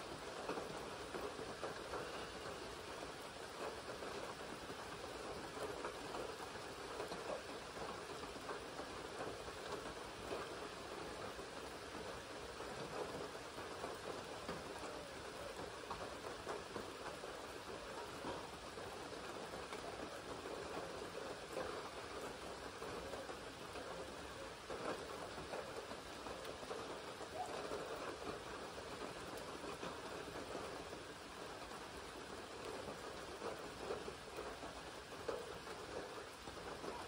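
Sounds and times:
rain falling on water: 0.0s - 37.0s.

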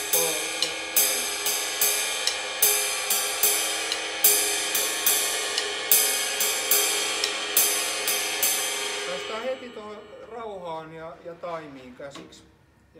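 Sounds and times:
hi-hat chick: 0.0s - 9.9s
ride cymbal: 0.0s - 12.2s.

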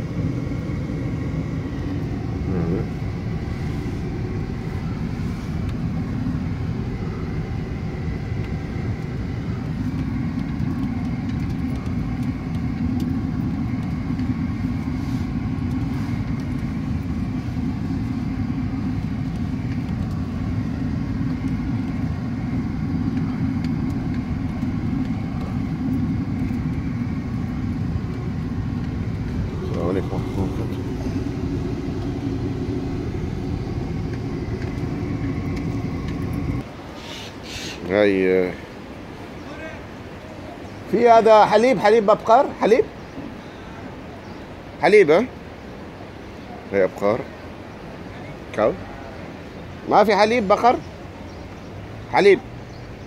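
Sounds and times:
car engine rumble: 0.0s - 37.0s
road noise: 0.0s - 53.0s.

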